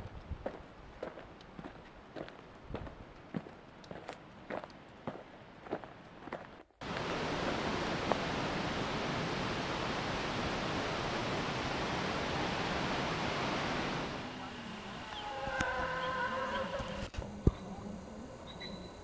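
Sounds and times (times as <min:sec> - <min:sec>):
soft footsteps: 0:00.0 - 0:08.3
water rushing: 0:06.8 - 0:17.1.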